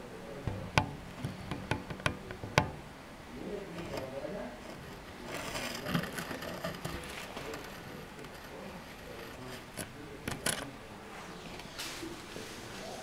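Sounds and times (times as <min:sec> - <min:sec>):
sharp clicks or knocks: 0:00.4 - 0:02.8.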